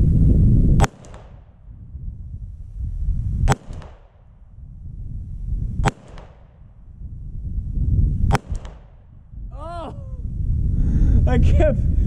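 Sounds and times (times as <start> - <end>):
pistol shots: 0.8 - 1.6, 3.5 - 4.4, 5.8 - 6.7, 8.3 - 9.1.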